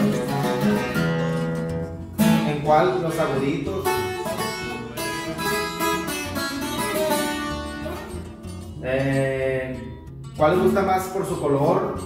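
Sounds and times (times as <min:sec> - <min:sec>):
twelve-string acoustic guitar playing: 0:00.0 - 0:12.0.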